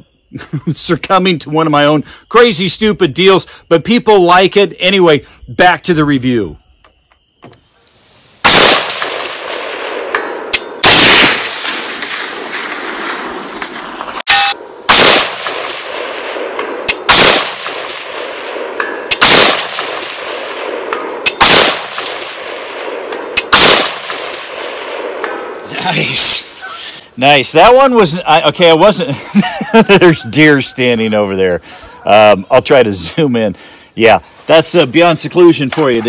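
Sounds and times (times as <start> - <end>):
rifle shots echoing: 8.4 - 25.6.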